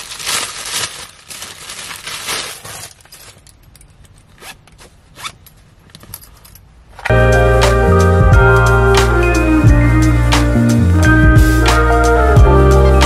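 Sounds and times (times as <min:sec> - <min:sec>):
plastic packaging crinkling: 0:00.0 - 0:03.7
zipper clicks: 0:04.1 - 0:06.1.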